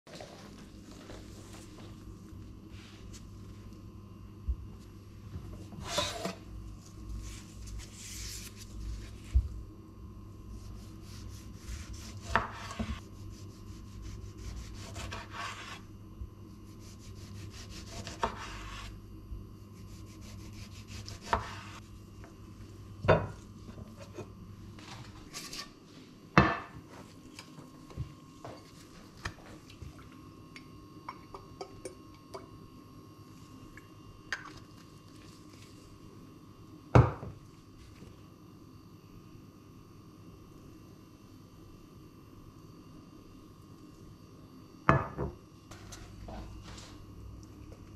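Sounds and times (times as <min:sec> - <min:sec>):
low steady hum: 0:00.1 - 0:47.9
knife slicing on cutting board: 0:14.4 - 0:15.8, 0:17.3 - 0:18.9.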